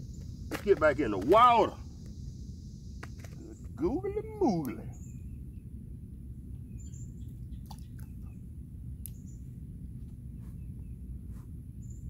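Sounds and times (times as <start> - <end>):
low background rumble: 0.0 - 12.0
high bird chirps: 4.7 - 5.7.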